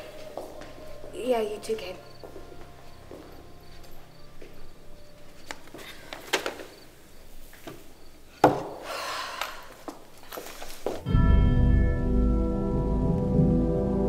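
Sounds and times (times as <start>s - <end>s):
crickets chirping: 0.0s - 10.6s
rustling: 10.1s - 11.1s.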